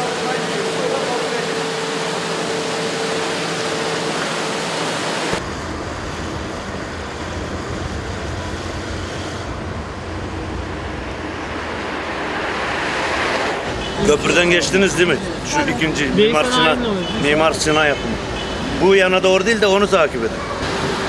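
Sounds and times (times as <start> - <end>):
low rumble: 5.4 - 14.0.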